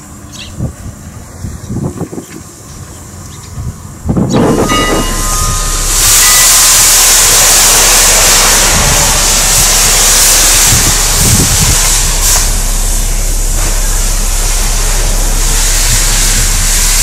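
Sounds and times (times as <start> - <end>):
wind rumble on microphone: 0.4 - 17.0
steam locomotive hissing: 3.7 - 17.0.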